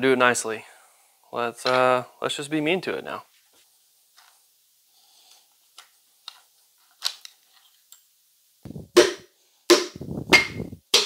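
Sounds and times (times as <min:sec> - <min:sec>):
hammer tapping metal: 0:09.0 - 0:11.0.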